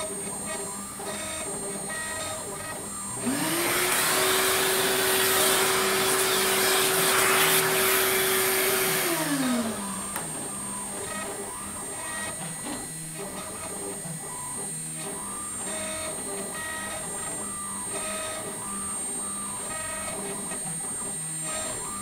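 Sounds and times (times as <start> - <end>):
vacuum cleaner motor whine: 0.0 - 22.0
vacuum hose sucking wood chips: 3.2 - 10.4.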